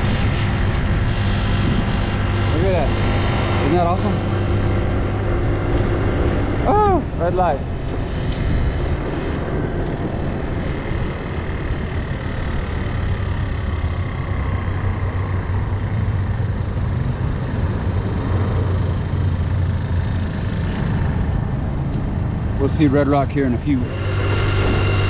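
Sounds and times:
cars passing: 0.0s - 25.0s
scooter engine running: 0.0s - 25.0s.

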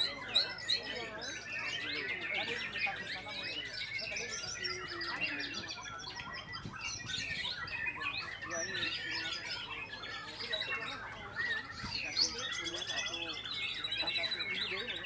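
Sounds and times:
birds singing whistles and trills: 0.0s - 15.0s.

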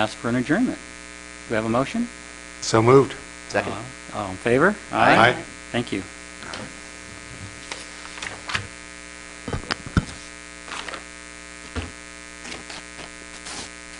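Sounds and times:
electrical hum and buzz: 0.0s - 13.9s
paper rustling: 7.6s - 8.7s, 10.0s - 11.0s, 11.7s - 13.8s
knocks and thumps: 11.7s - 12.0s.

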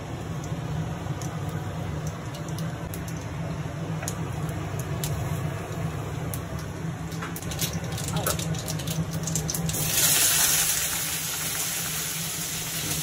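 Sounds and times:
steady low hum: 0.0s - 13.0s
seeds sizzling in hot oil: 7.4s - 13.0s.

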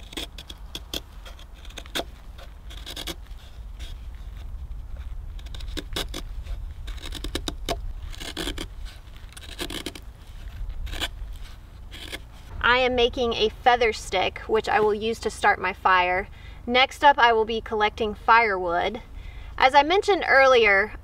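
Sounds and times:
knife scraping wooden stick: 0.0s - 12.5s.

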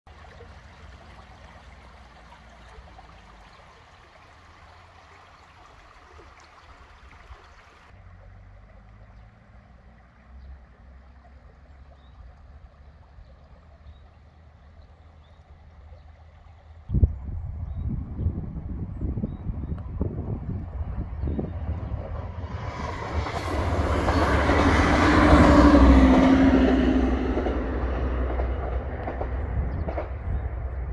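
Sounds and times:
small stream trickling: 0.0s - 27.9s
low wind rumble on microphone: 16.9s - 30.9s.

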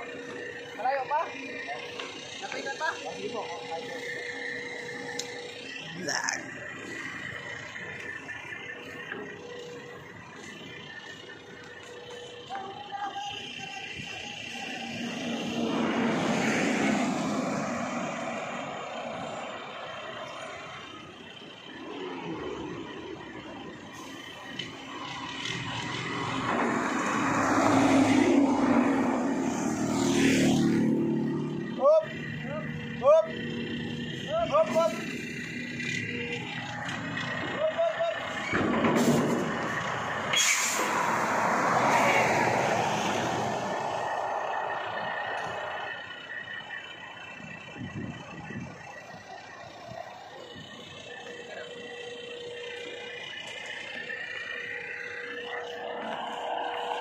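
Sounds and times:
vehicle engine and road noise: 0.0s - 57.0s
sharp air hiss: 40.3s - 41.0s.

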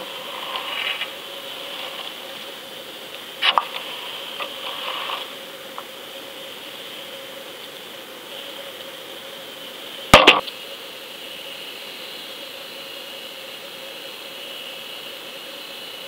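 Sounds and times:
faint constant hum: 0.0s - 16.0s
underwater hiss: 0.0s - 16.0s
knocks on camera housing: 10.2s - 10.4s.

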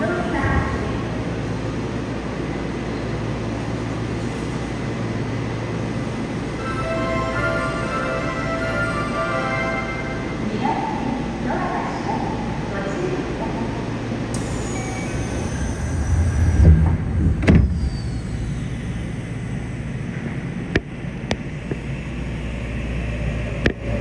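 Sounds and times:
train equipment humming: 0.0s - 24.0s
train doors sliding shut: 14.3s - 18.7s.

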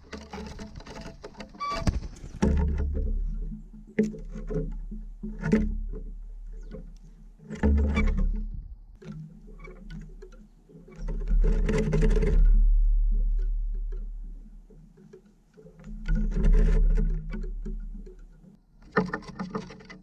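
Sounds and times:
bird scuffling and thumping: 0.4s - 3.0s.

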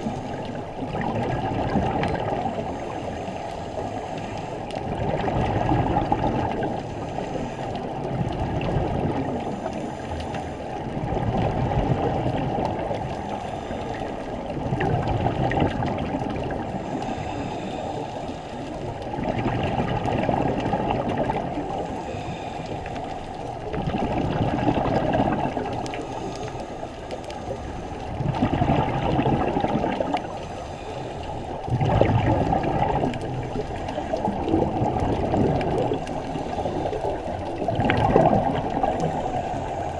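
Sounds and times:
diver exhaling bubbles underwater: 0.0s - 2.8s, 4.8s - 6.8s, 14.5s - 17.2s, 19.0s - 21.9s, 23.6s - 26.3s, 28.1s - 30.3s, 31.6s - 39.9s.

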